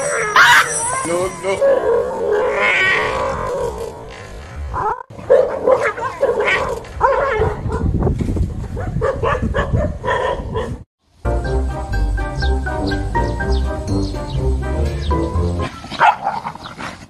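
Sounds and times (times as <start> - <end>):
small dog barking and yipping: 0.0 - 1.9, 4.8 - 7.9, 8.8 - 10.7, 15.8 - 16.6.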